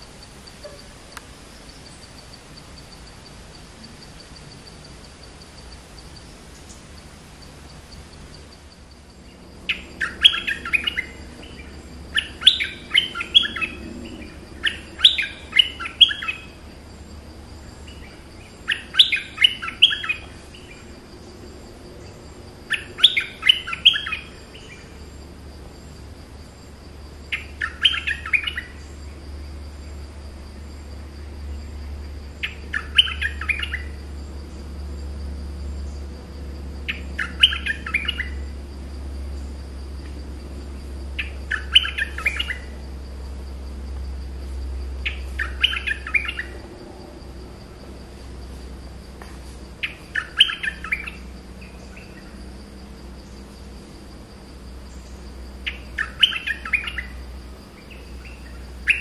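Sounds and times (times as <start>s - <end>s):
songbird calling high notes: 9.7s - 16.6s, 17.9s - 20.8s, 22.7s - 24.8s, 32.4s - 34.0s, 36.9s - 38.5s, 41.2s - 42.7s, 45.0s - 46.6s, 49.8s - 52.4s, 55.6s - 57.2s, 57.8s - 59.0s.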